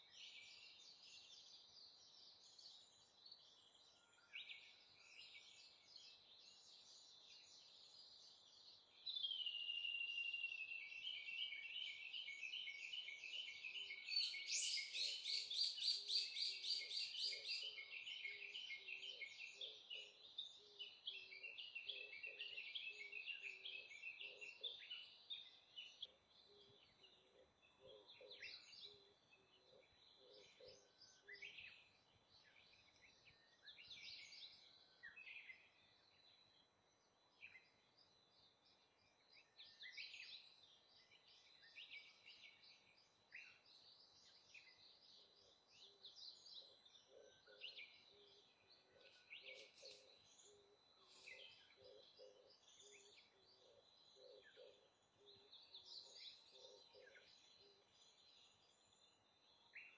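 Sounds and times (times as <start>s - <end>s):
songbird singing rapid notes: 0.0s - 59.9s.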